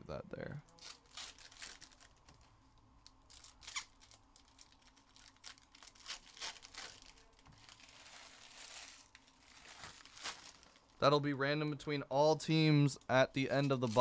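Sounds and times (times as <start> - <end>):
card packaging rustling: 3.3 - 10.9, 13.4 - 14.0.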